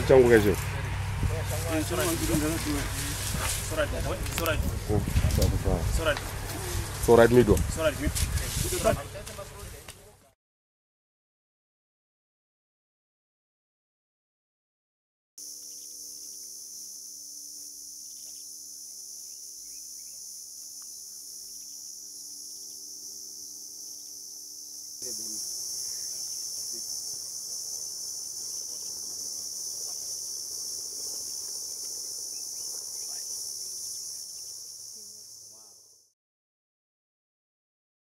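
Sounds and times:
insect chorus: 0.0s - 9.8s, 15.4s - 36.2s.

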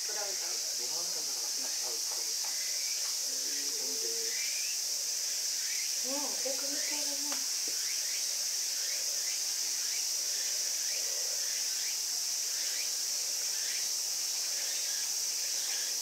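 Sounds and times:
insect chorus droning: 0.0s - 16.0s.

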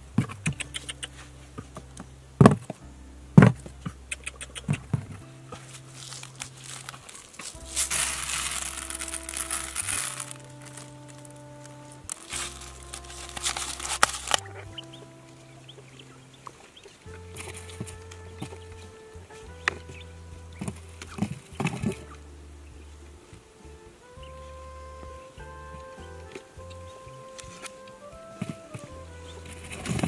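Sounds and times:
steady music track: 0.0s - 30.0s
dry grain pattering onto cardboard: 5.6s - 14.5s.

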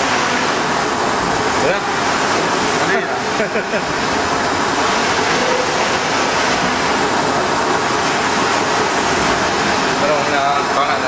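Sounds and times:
flatbed printer running: 0.0s - 11.0s.

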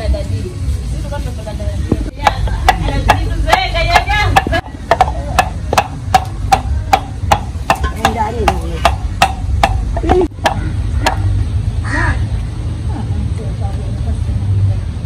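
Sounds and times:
knife chopping food: 2.2s - 11.2s.

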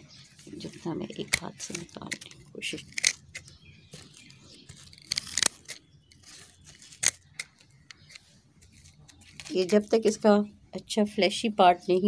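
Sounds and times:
dry root fibres rustling: 0.0s - 10.5s
pruning shears snipping: 0.7s - 8.2s.

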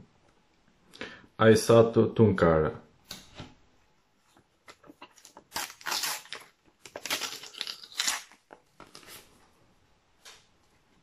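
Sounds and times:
wrapper tearing and crinkling: 5.0s - 9.2s.

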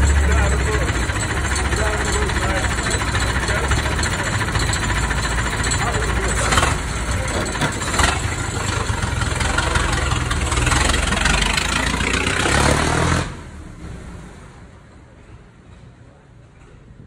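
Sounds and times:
racing car engine pulling away: 0.0s - 14.9s.

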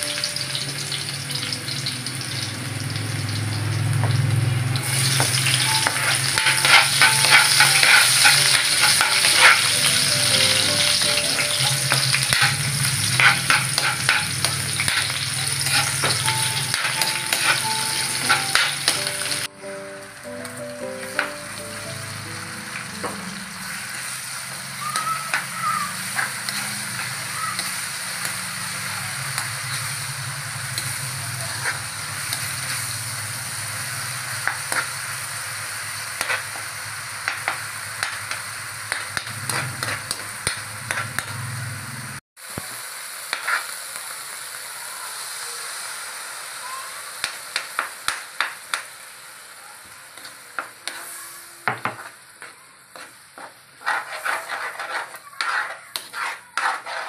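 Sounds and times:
frying in hot oil sizzling: 0.0s - 57.0s
metal spatula scraping a wok: 4.8s - 19.4s, 25.2s - 28.6s, 29.3s - 33.2s, 36.2s - 36.6s, 38.9s - 41.4s, 50.2s - 51.2s, 51.9s - 57.0s.

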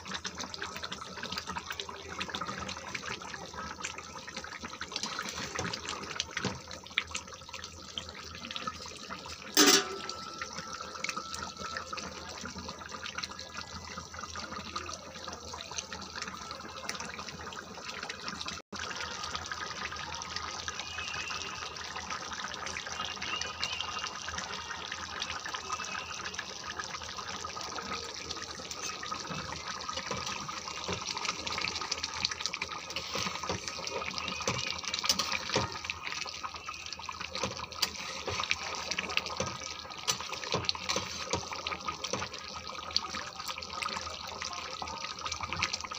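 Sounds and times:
curry bubbling in pan: 0.0s - 45.9s
spatula stirring thick gravy: 28.6s - 42.6s.

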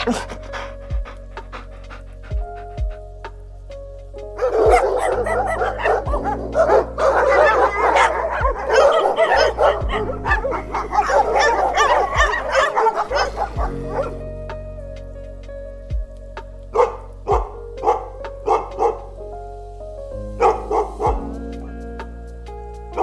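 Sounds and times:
background music: 0.0s - 23.0s
dog yipping whining and barking: 4.4s - 14.2s.

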